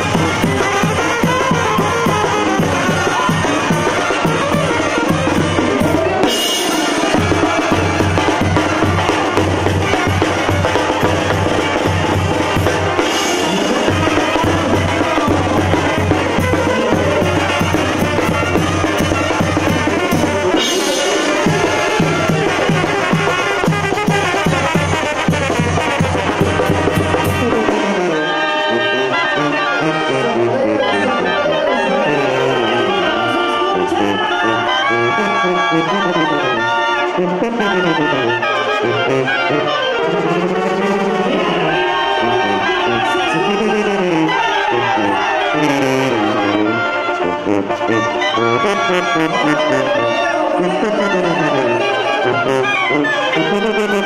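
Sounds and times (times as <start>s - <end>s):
bass drum and snare beat: 0.0s - 28.0s
trumpets and clarinets: 0.0s - 54.0s.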